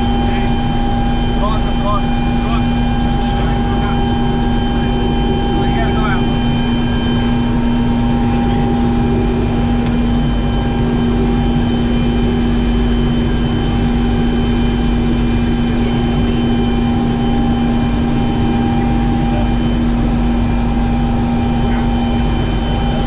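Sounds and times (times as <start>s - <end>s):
helicopter engine and rotors droning: 0.0s - 23.0s
high whining tones: 0.0s - 23.0s.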